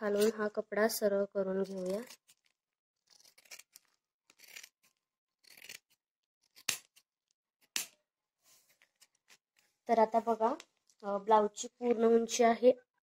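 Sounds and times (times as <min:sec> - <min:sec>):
scissors snipping cloth: 0:01.6 - 0:02.5, 0:03.1 - 0:08.0.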